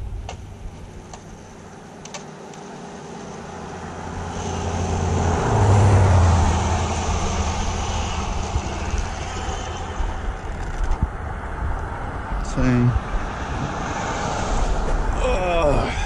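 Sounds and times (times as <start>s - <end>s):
car passing close by: 2.8s - 10.6s, 11.6s - 15.2s.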